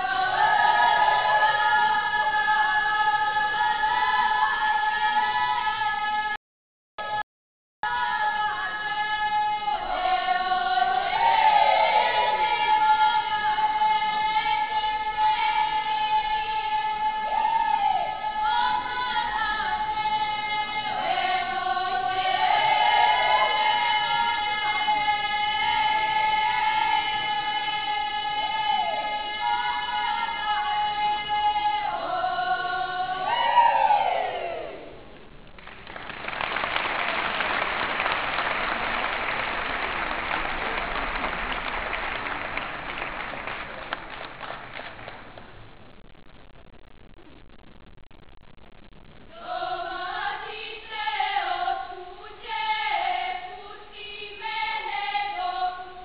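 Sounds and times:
folk group singing together: 0.0 - 6.4, 7.9 - 34.8, 49.3 - 56.0
audience applauding: 35.6 - 45.6.

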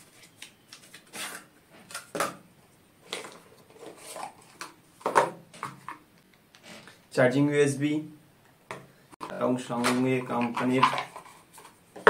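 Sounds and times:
cardboard packaging rustling: 0.0 - 2.2, 3.0 - 6.0.

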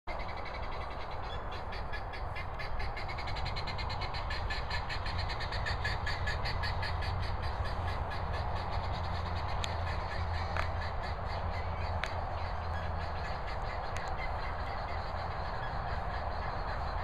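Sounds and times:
low steady rumble: 0.1 - 17.0
animal clicking chirps: 13.9 - 14.6.

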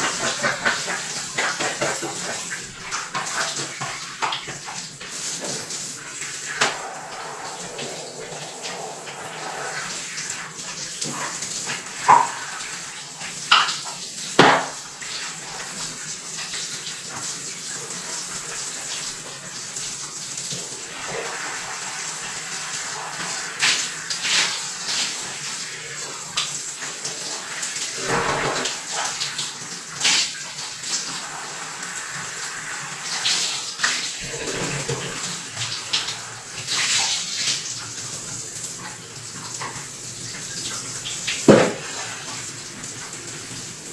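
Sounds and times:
water splashes and knocks: 0.0 - 19.2, 27.7 - 31.2, 33.3 - 43.9
water rushing in jacuzzi tub: 0.0 - 43.9.

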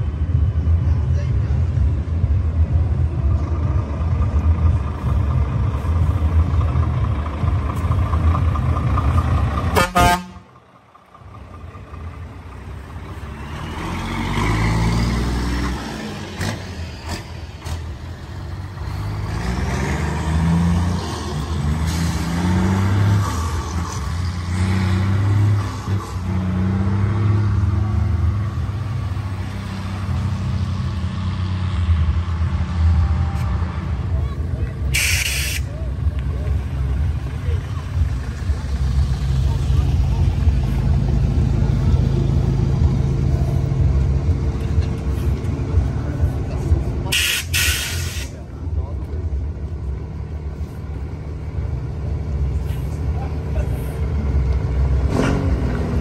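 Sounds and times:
truck diesel engines running: 0.0 - 56.0
truck horn: 9.6 - 10.6, 34.9 - 35.7.

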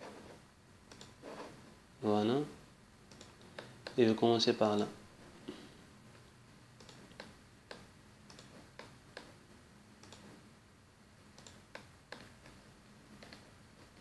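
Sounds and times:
faint computer mouse clicks: 0.9 - 1.2, 3.1 - 4.0, 6.8 - 9.3, 10.0 - 10.3, 11.4 - 12.6.

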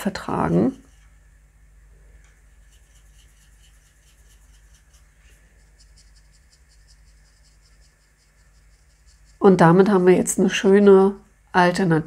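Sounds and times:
paintbrush scratching on paper: 0.0 - 1.2, 2.4 - 10.1
low steady hum: 0.0 - 12.0.

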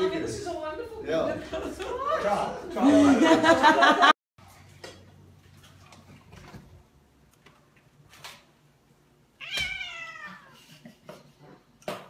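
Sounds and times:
cat meowing: 9.4 - 10.6.

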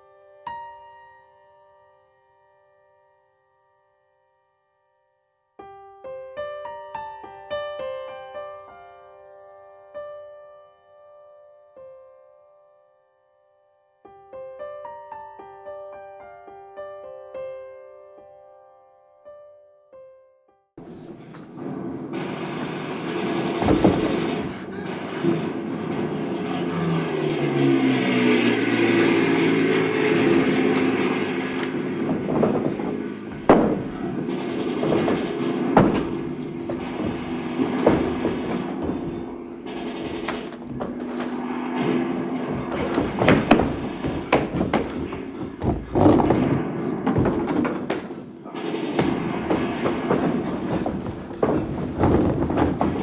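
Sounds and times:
gunfire and explosions: 21.4 - 53.0
sharp bang: 21.5 - 53.0
engine-like drone and rumble: 24.5 - 44.0.

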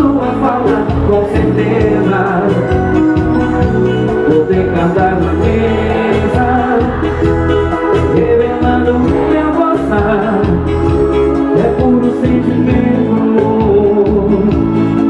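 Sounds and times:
live band playing dance music: 0.0 - 15.0
person singing: 0.0 - 15.0.

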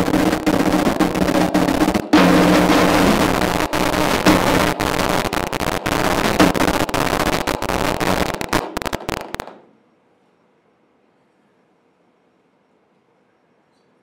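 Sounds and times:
low drone: 0.0 - 8.5
loud dense crackling: 0.0 - 9.6.

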